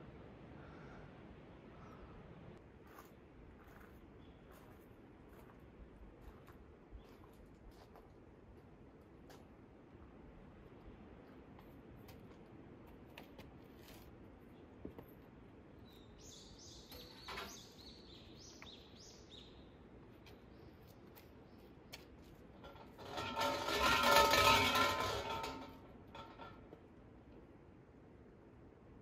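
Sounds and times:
bird chirping: 15.8 - 20.9.

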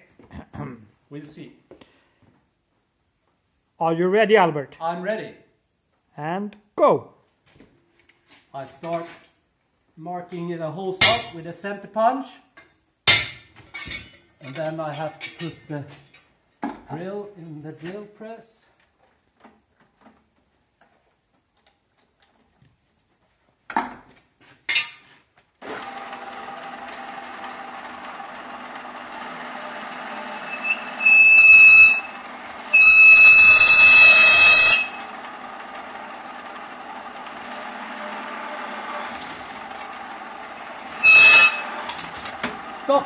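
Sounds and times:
drill press motor running: 25.6 - 42.9
drill screeching into steel: 29.0 - 35.2, 40.8 - 42.2.

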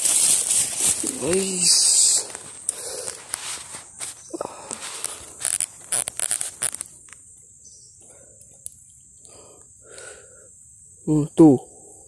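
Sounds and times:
rustling handling noise: 0.0 - 7.2
insects droning: 0.0 - 12.0.

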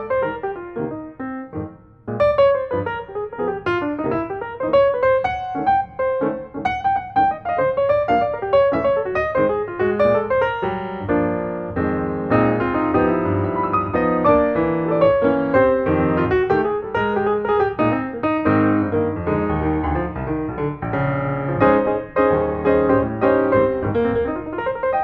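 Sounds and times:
piano music: 0.0 - 25.0.

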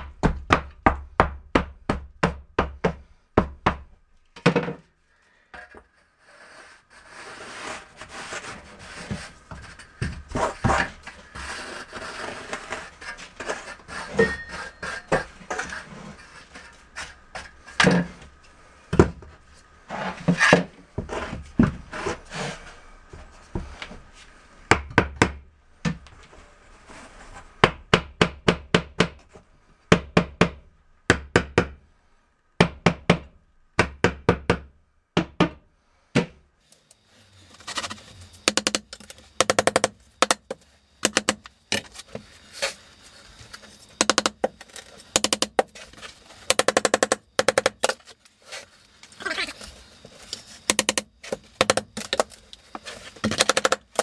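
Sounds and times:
hand tools tamping mortar: 6.4 - 18.3, 37.6 - 42.8, 43.4 - 48.1, 50.3 - 54.0.

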